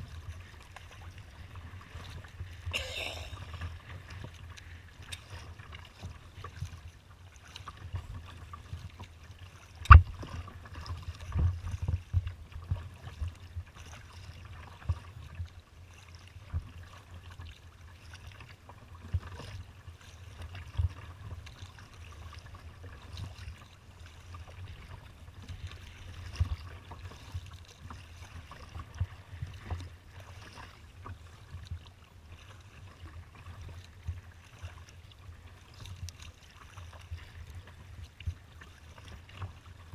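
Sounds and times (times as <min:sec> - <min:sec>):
water slapping kayak hull: 0:00.0 - 0:39.9
low thumps on boat: 0:09.8 - 0:13.7.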